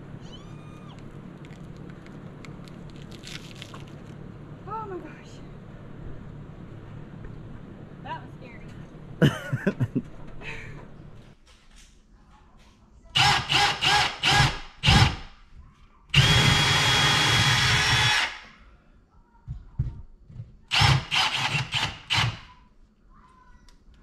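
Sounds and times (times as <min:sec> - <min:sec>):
cordless drill boring into wall: 0:13.2 - 0:15.2, 0:16.2 - 0:18.5, 0:20.7 - 0:22.5.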